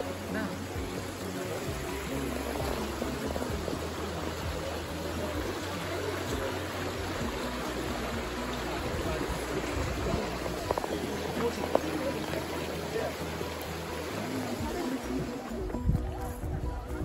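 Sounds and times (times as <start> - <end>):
river rushing over stones: 0.0 - 17.0.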